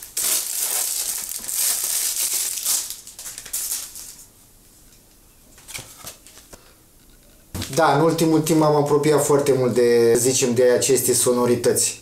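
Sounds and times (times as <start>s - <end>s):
packaging crinkling: 0.0s - 4.3s.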